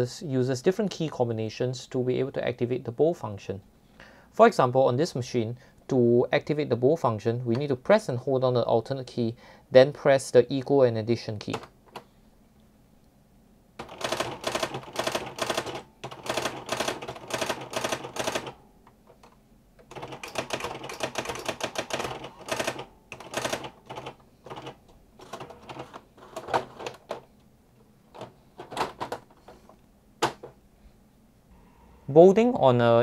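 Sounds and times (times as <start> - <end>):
typewriter mechanical clatter: 13.8 - 18.6, 19.9 - 27.2.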